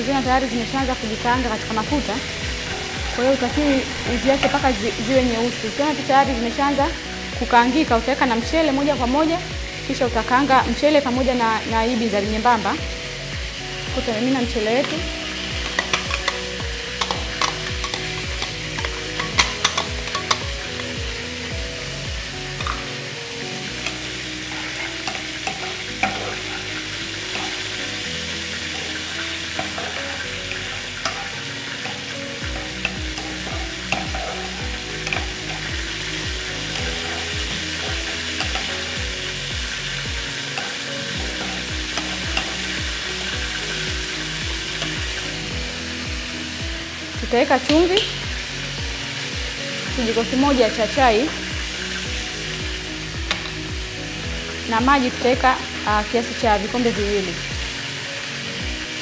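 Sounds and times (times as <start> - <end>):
rice sizzling in hot oil: 0.0 - 59.0
spatula stirring in pan: 23.6 - 43.8.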